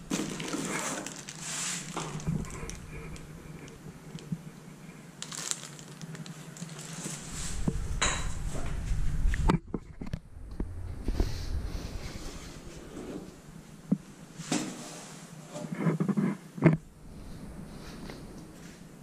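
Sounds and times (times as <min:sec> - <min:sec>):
plastic wrap crinkling: 0:00.0 - 0:04.4, 0:05.2 - 0:07.6.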